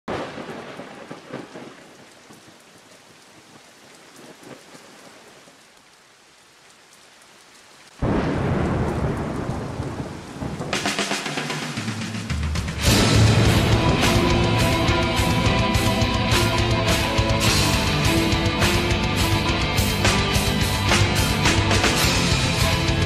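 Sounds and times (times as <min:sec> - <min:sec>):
faint thunder crackles: 0:00.1 - 0:05.8, 0:07.8 - 0:23.0
steady rain hiss: 0:00.1 - 0:23.0
loud thunderclap: 0:08.0 - 0:23.0.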